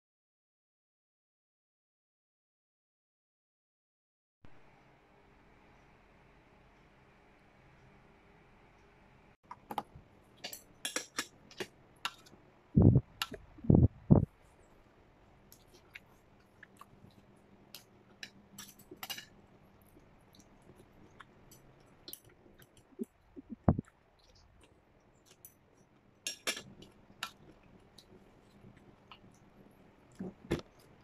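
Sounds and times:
chewing and mouth sounds: 15.5s - 19.0s, 19.7s - 31.0s.

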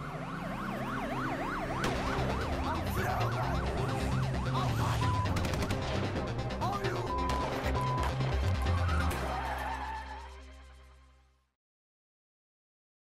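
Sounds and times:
siren yelping: 0.0s - 5.5s, 6.8s - 10.3s
music with low bass line: 1.8s - 9.4s.

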